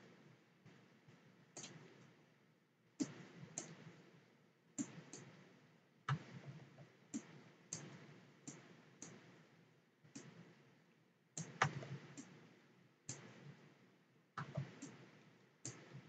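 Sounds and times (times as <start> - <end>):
computer mouse clicking: 1.6 - 2.2, 3.0 - 3.9, 4.8 - 5.4, 6.1 - 9.3, 10.1 - 10.5, 11.4 - 12.4, 13.1 - 13.5, 14.4 - 16.0.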